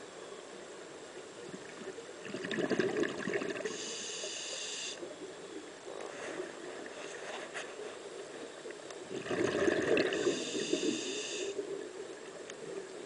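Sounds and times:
underwater wash: 1.4 - 13.0
rush of exhaled bubbles: 2.2 - 3.8, 9.1 - 11.0
regulator whistling hiss: 3.7 - 5.1, 10.2 - 11.6.

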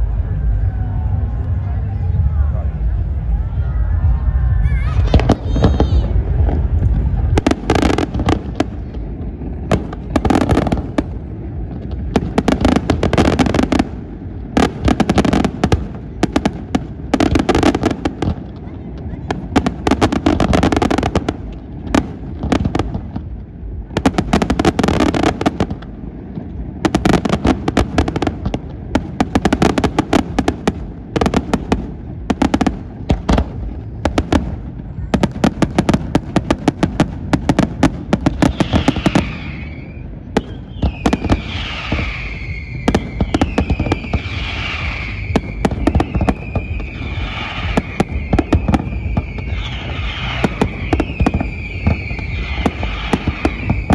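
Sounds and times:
fireworks bursts and bangs: 0.0 - 53.9
fireworks whistles: 35.0 - 53.9.

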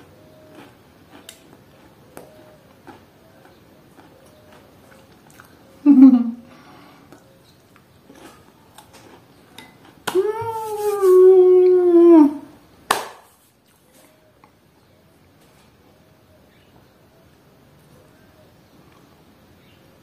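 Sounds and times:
faint chewing: 0.0 - 5.9, 6.5 - 11.0, 18.8 - 19.2
woman humming mmm: 10.1 - 12.6.

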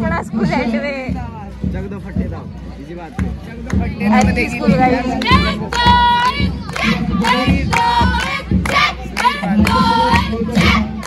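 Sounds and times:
group of high voices singing: 4.1 - 11.0.

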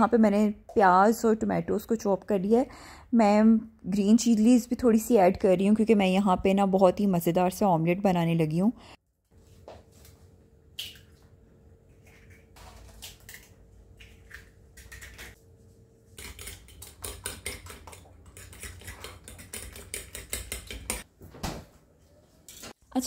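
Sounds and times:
cutlery beating eggs in a bowl: 16.1 - 21.1.

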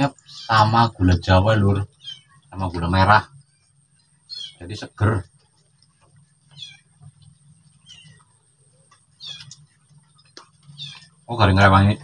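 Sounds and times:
high-pitched animal calls: 6.5 - 8.3, 9.1 - 9.7, 10.7 - 11.2.

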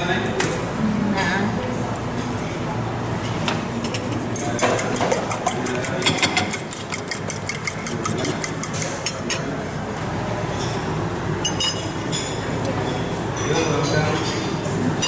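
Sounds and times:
fork beating eggs in metal bowl: 3.8 - 9.6.

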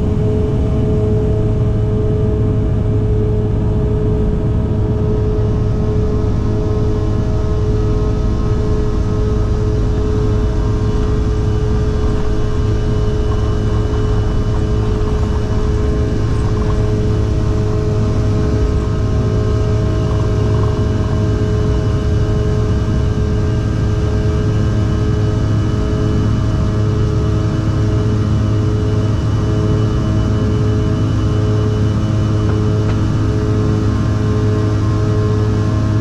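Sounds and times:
jet engines at takeoff thrust: 0.0 - 36.0.

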